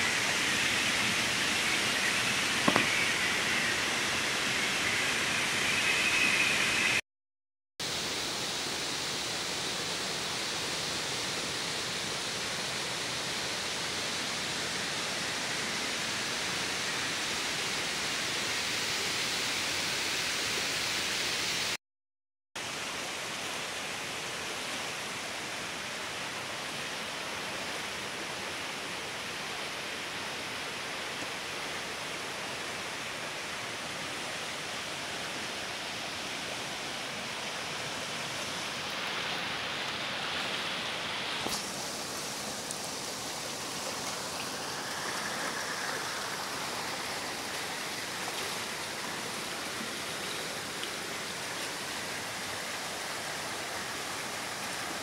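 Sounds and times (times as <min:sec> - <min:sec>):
water rushing over rocks: 0:00.0 - 0:07.0, 0:22.6 - 0:55.0.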